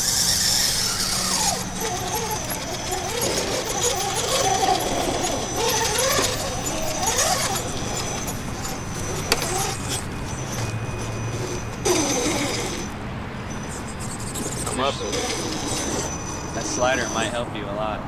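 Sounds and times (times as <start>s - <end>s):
rc car electric motor whining: 0.0s - 17.8s.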